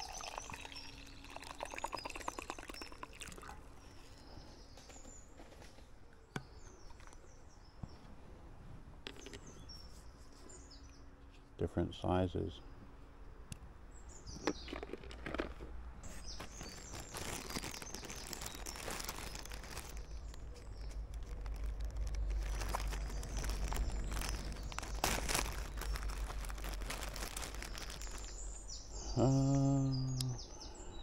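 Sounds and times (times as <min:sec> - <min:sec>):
small birds chirping: 0:00.0 - 0:08.2, 0:09.1 - 0:31.0
steady low rumble: 0:20.0 - 0:28.8.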